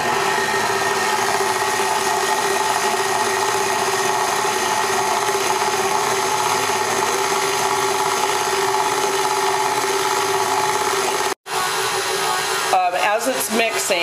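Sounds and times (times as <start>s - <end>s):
stand mixer motor humming: 0.0s - 14.0s.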